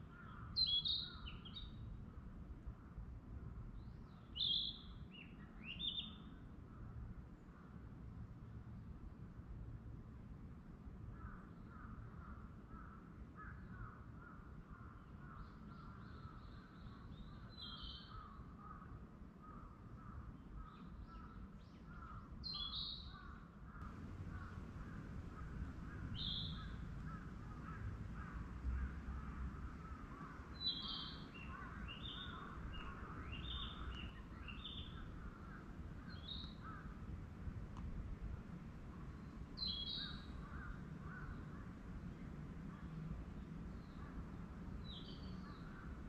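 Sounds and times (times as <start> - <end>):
low rumble: 23.8 - 28.6.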